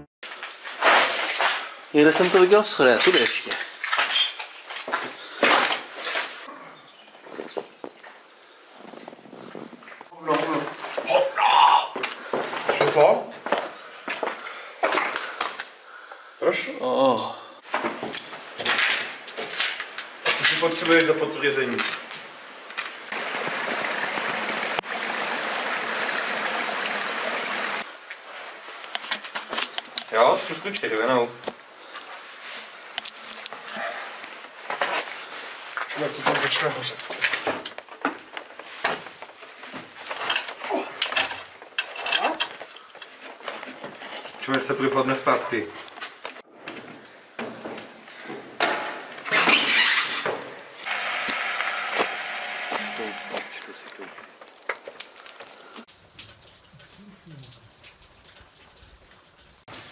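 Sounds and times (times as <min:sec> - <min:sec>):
forest stream running: 0:20.6 - 0:28.9, 0:50.8 - 0:59.9.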